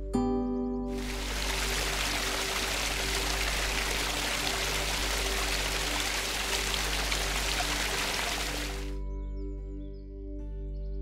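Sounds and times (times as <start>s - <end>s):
low background music tones: 0.0s - 11.0s
stream cascading over rocks: 0.9s - 9.0s.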